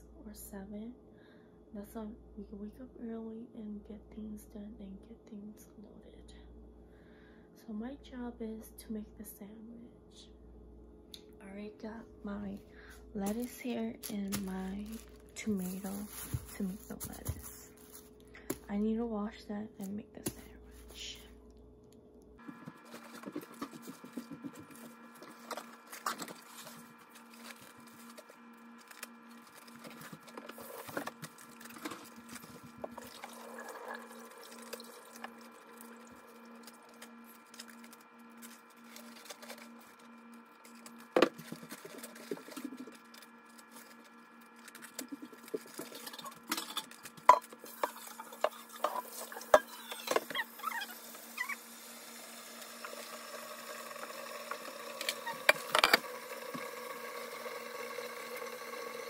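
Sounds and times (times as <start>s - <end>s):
lettuce leaves crackling and snapping: 13.3s - 17.2s, 36.6s - 40.0s
tap water running into pot: 33.0s - 36.2s, 51.0s - 59.0s.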